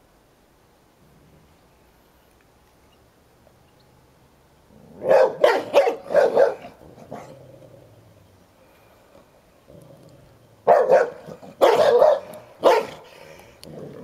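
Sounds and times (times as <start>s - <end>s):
dog barking: 5.0s - 7.3s, 10.6s - 13.1s.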